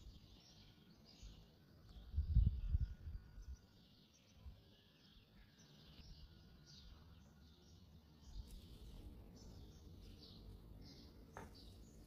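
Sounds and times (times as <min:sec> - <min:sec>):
birds chirping faintly: 0:00.0 - 0:12.0.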